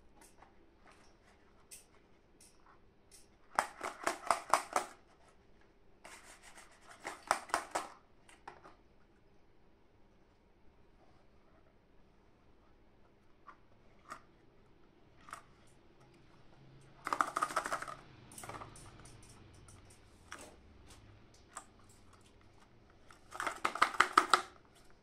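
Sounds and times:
rapid clicking and rattling: 16.9 - 20.4, 21.9 - 24.6.

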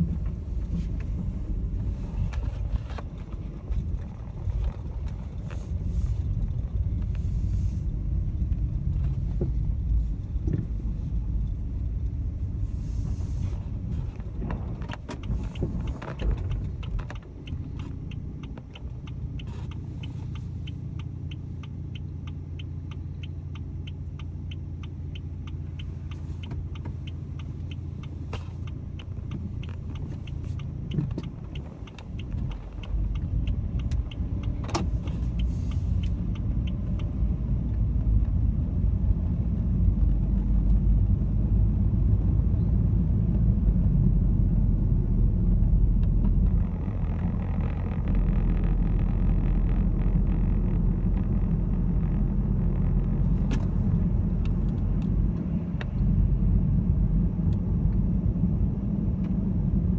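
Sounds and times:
car engine idling: 0.0 - 41.4, 43.5 - 57.7
tyres and engine rumble on snow: 0.0 - 59.9
fast even ticking: 15.2 - 37.2.

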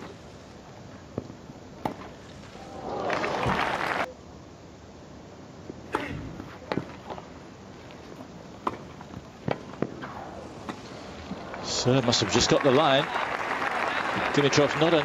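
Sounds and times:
tennis ball hit by racquets: 8.6 - 10.9.

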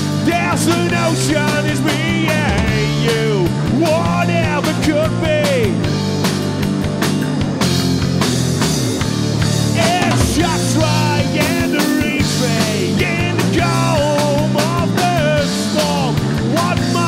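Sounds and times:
live rock band playing: 0.0 - 17.0
man singing into a microphone: 0.2 - 5.8, 9.7 - 17.0.

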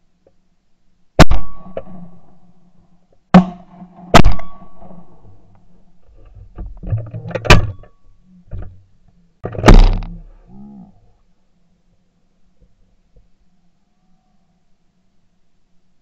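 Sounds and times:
shotgun shots with echo: 1.2 - 2.1, 3.4 - 5.1, 9.6 - 10.1.

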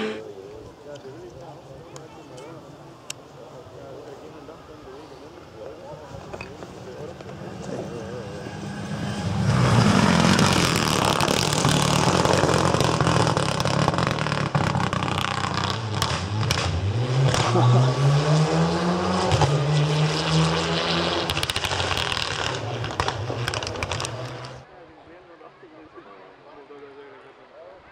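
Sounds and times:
rally car engine revving: 0.0 - 0.2, 7.5 - 24.6.

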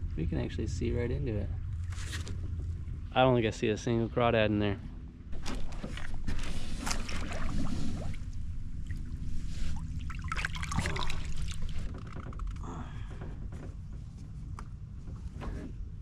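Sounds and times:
low hum: 0.0 - 16.0
water splashing and trickling: 5.4 - 12.2.

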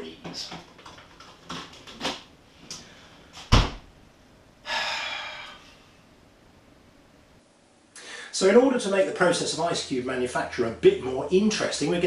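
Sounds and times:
freezer drawer thud: 3.5 - 3.8
person sighing: 4.6 - 5.8, 8.0 - 8.3.

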